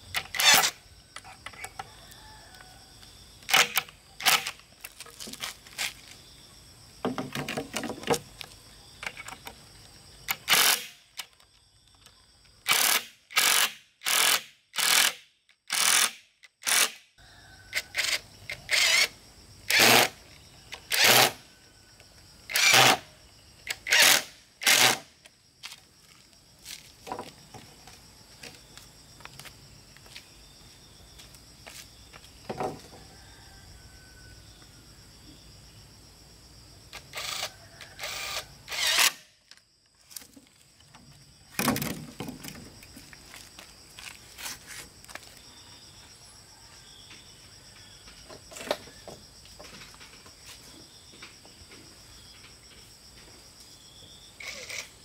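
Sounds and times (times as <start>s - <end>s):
insects droning: 0.0s - 55.0s
bamboo poles clattering: 3.5s - 6.2s, 7.0s - 9.7s, 25.7s - 28.6s, 40.0s - 45.3s, 48.0s - 51.4s.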